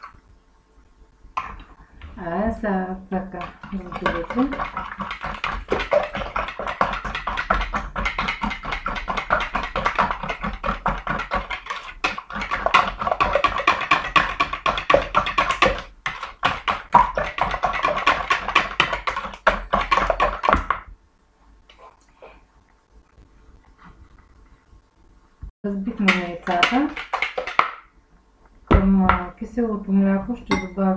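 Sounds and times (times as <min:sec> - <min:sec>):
whisk beating eggs in a bowl: 0:03.1 - 0:20.8, 0:26.0 - 0:27.8.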